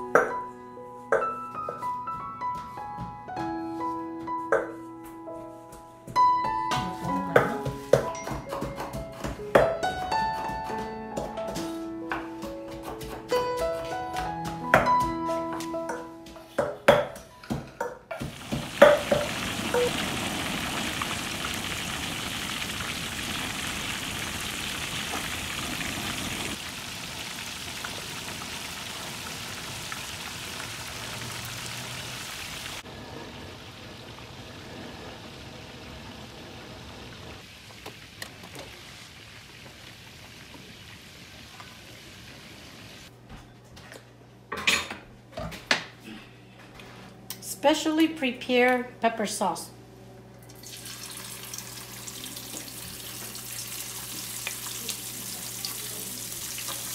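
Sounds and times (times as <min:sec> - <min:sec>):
fish sizzling in hot oil: 0:18.2 - 0:32.8, 0:50.6 - 0:56.9.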